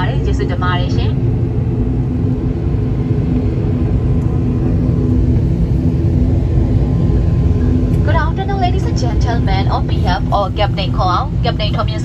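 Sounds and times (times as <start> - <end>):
turboprop engines droning: 0.0 - 12.0.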